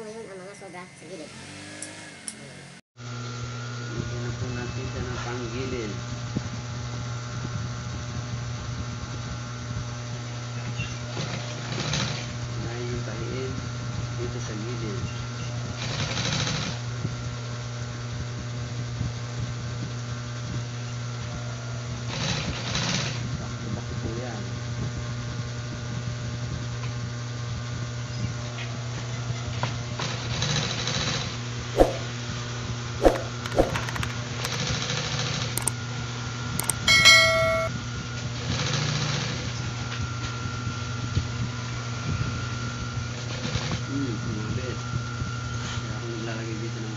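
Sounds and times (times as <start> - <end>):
sewing machine stitching: 33.2 - 34.6
short ringing bell chime: 36.6 - 37.7.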